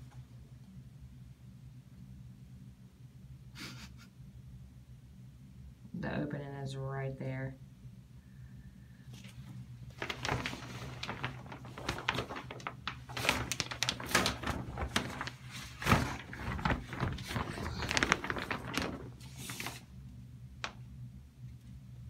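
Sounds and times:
plastic curtain crinkling: 0:09.1 - 0:20.0.

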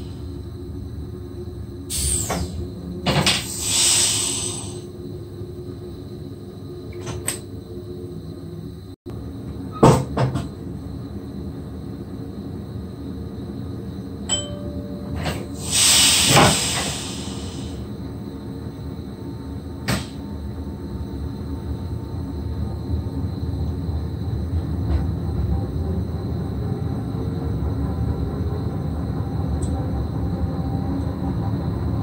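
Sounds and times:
compressed air hiss: 0:01.9 - 0:05.0, 0:15.6 - 0:17.9
click: 0:29.6 - 0:29.8.

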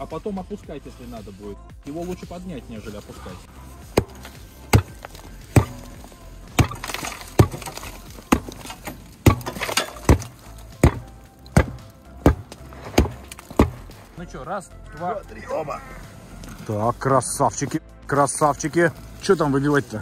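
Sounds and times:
sharp metal knocks: 0:06.6 - 0:13.9.

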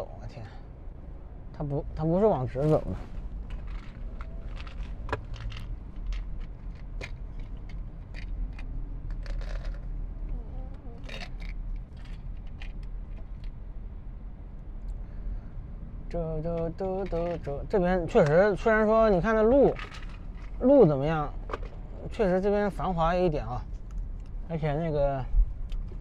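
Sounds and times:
car road and engine rumble: 0:00.0 - 0:26.0
light clicks and rattles: 0:03.4 - 0:13.6, 0:16.4 - 0:18.7, 0:19.5 - 0:20.6.

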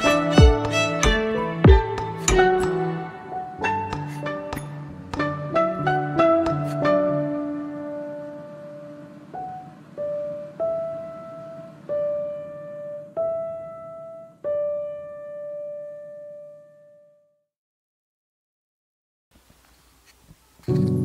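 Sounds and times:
slow piano notes: 0:00.0 - 0:17.2, 0:20.6 - 0:21.0.

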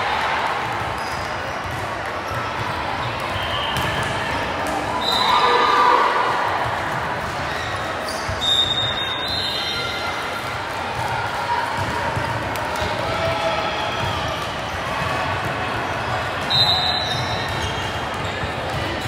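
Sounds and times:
many voices talking: 0:00.0 - 0:19.0.

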